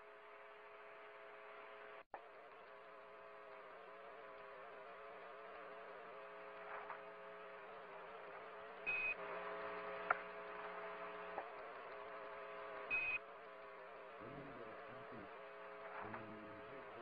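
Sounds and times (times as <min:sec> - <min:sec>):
electrical radio hum: 0:02.2 - 0:17.0.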